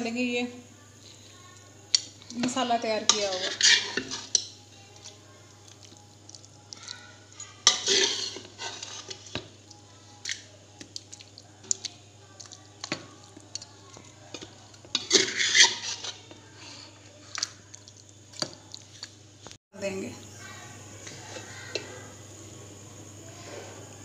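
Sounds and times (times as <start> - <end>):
metal spoon scraping pot: 2.4 - 4.6, 7.6 - 9.4, 14.3 - 16.4.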